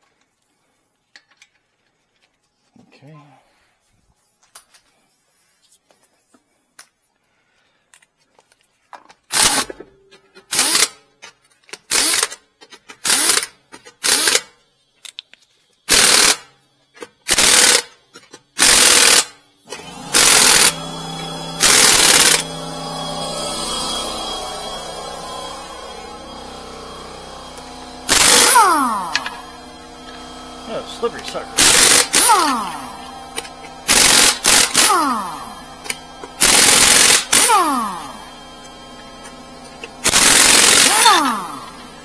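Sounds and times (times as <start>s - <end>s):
impact wrench hammering: 9.4s - 11.0s, 17.2s - 42.0s
steady machine hum: 18.6s - 42.0s.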